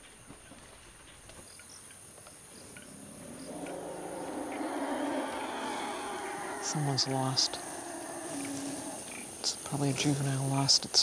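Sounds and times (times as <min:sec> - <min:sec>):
high insect buzz: 0:01.4 - 0:11.0
elephant calf calling: 0:02.8 - 0:10.5.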